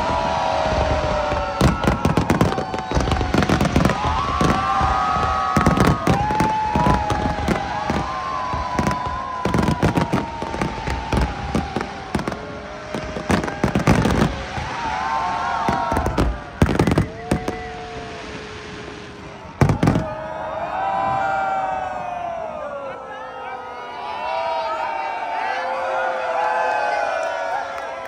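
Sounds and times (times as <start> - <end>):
firework whistling tones: 0.0 - 20.4
firework bangs and crackles: 0.0 - 22.1.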